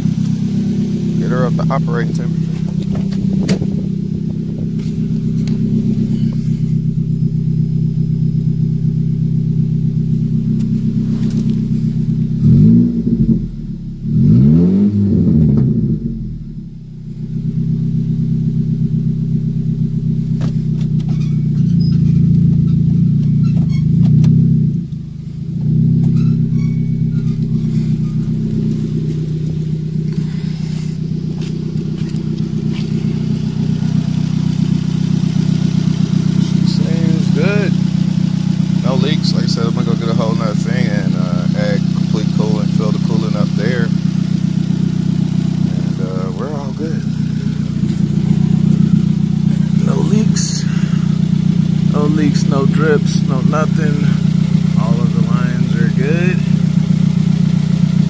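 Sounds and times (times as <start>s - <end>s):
car engine idling and revving: 0.0s - 58.0s.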